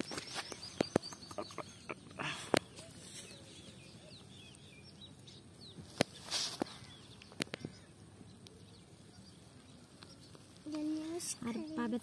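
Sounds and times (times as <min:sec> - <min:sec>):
small birds chirping: 0:00.0 - 0:12.0
brief rustle: 0:05.9 - 0:07.6.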